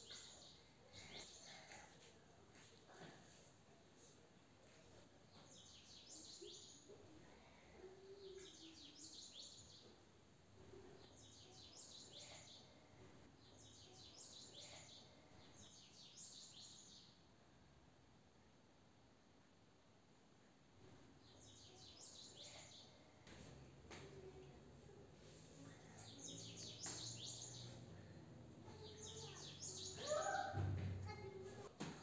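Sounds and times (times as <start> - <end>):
faint bird chirping: 4.0 - 17.3, 20.9 - 31.6.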